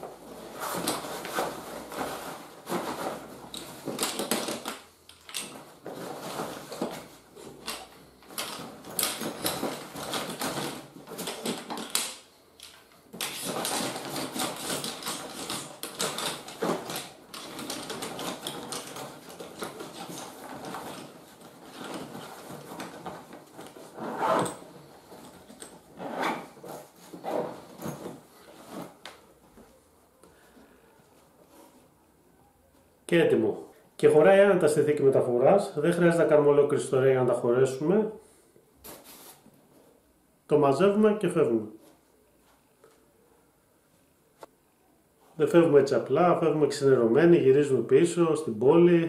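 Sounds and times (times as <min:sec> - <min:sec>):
nylon bag rustling: 0:00.0 - 0:12.0, 0:13.1 - 0:29.8
metal poles clicking and knocking: 0:00.6 - 0:23.8.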